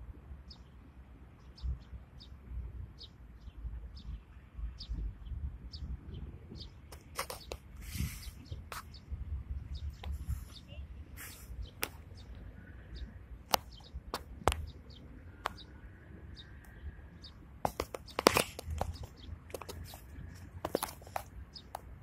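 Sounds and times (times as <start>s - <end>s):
low wind rumble: 0.0s - 22.0s
ducks preening clicks and rustles: 6.9s - 8.9s, 17.7s - 21.8s.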